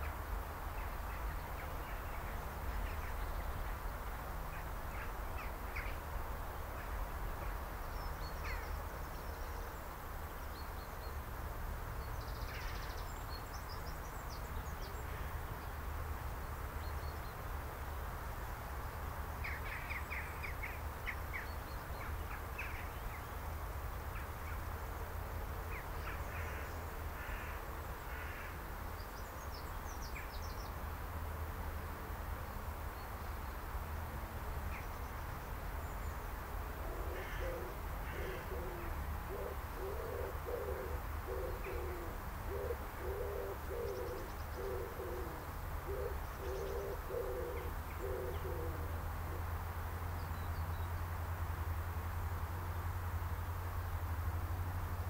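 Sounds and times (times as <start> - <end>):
dove cooing: 36.8 - 48.9.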